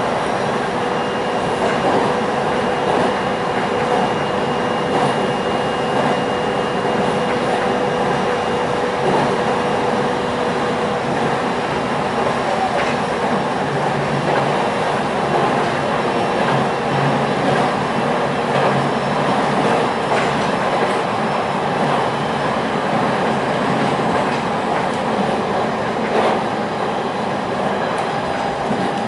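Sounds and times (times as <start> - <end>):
train wheels rumbling on rails: 0.0 - 29.0.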